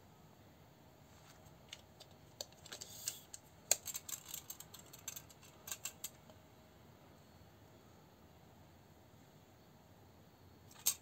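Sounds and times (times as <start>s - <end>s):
tape measure clicking and rattling: 2.0s - 6.2s, 10.7s - 11.0s.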